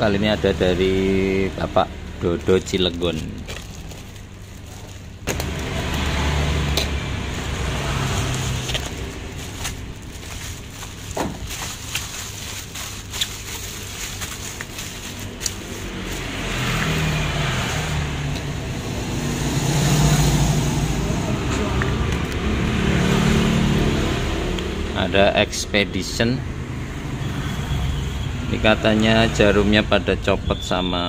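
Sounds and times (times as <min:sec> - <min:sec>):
bubble wrap crackling: 0:00.7 - 0:18.7.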